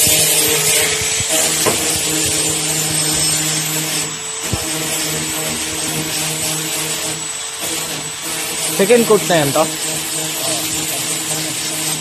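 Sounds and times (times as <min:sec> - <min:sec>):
small motor humming: 0:00.0 - 0:12.0
light knocks: 0:01.0 - 0:02.5.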